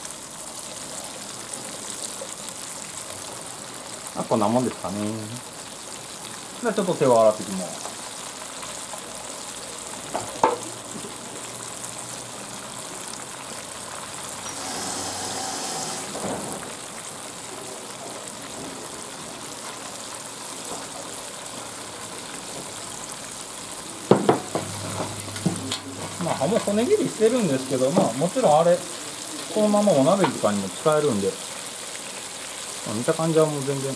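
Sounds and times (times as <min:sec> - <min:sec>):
oil sizzling and bubbling: 0:00.0 - 0:33.9
sharp knock: 0:24.1 - 0:25.7.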